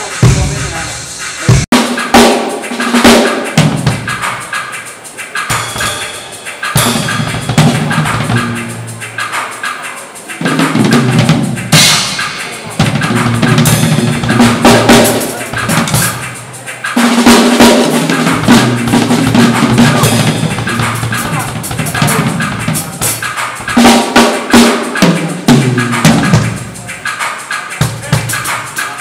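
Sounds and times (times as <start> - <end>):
snare drum: 0.0 - 29.0
tom fills: 0.0 - 29.0
bass drum: 10.6 - 16.4, 17.6 - 24.1.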